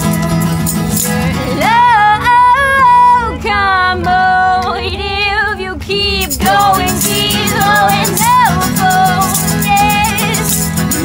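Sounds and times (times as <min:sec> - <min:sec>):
women singing pop song: 0:01.3 - 0:10.9
shaker rattling: 0:06.2 - 0:11.0.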